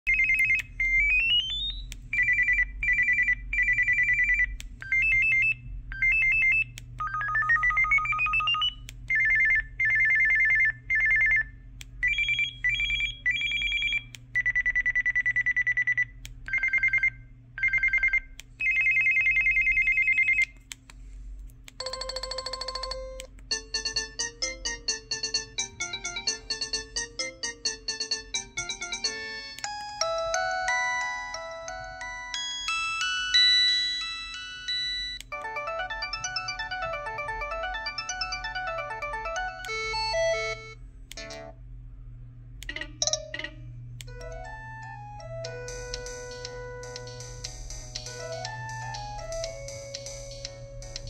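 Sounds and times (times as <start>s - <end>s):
phone ringtone beeping: 0.1s - 20.4s, 21.8s - 41.5s.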